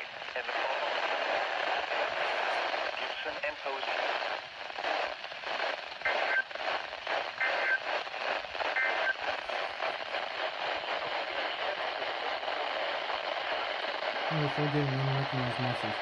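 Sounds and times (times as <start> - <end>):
radio static hiss: 0.0 - 16.0
two-tone data bursts: 7.4 - 7.9, 8.6 - 9.3.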